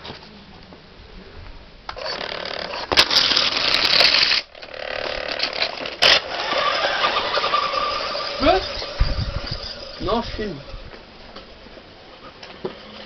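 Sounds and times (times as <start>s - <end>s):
toy car motor whirring: 2.0s - 11.0s, 12.2s - 13.0s.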